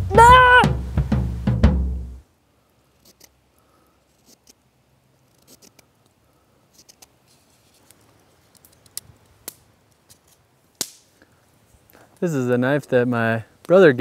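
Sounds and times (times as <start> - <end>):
knife scraping wood: 3.0 - 3.4, 4.1 - 4.6, 5.2 - 5.9
wood snapping: 7.9 - 11.1.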